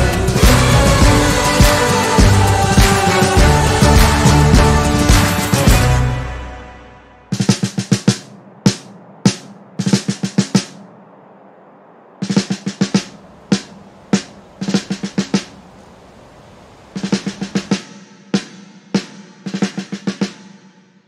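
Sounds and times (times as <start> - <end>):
snare drum playing: 0.0 - 6.0, 7.3 - 10.9, 12.2 - 15.5, 17.0 - 20.7.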